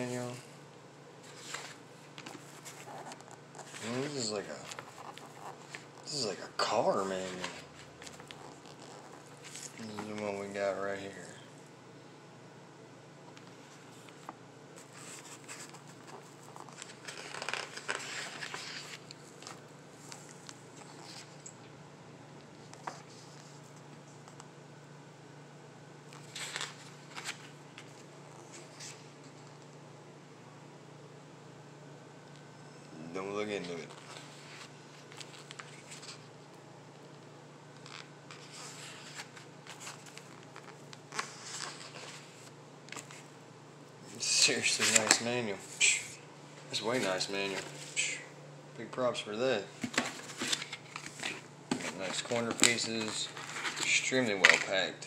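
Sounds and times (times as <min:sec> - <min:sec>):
low steady hum: 0:00.0 - 0:55.0
paper pages rustling: 0:01.2 - 0:10.5, 0:13.4 - 0:21.5, 0:26.1 - 0:29.6, 0:33.6 - 0:36.3, 0:37.8 - 0:43.3, 0:44.2 - 0:45.8, 0:46.7 - 0:48.1, 0:49.8 - 0:54.9.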